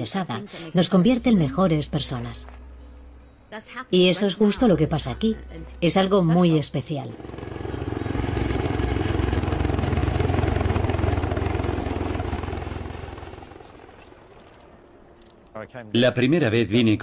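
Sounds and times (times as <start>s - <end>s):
helicopter flying past: 5.8s - 15.4s.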